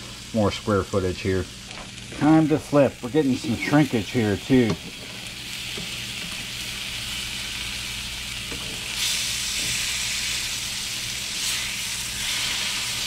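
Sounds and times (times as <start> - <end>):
fish sizzling in oil: 0.0 - 13.0
spatula turning fillets: 3.3 - 13.0.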